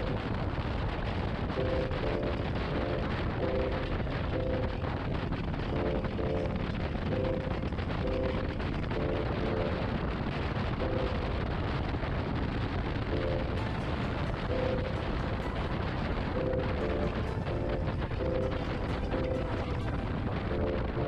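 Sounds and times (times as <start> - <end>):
wind rush: 0.0 - 21.0.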